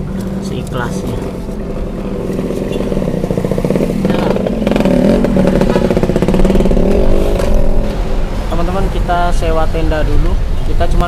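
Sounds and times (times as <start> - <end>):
motorcycle passing: 0.0 - 10.5
traffic engines: 0.0 - 11.0.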